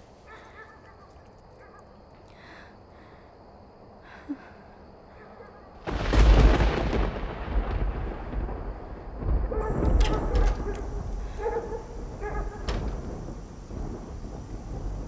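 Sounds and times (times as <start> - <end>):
thunder rumble: 5.7 - 15.0.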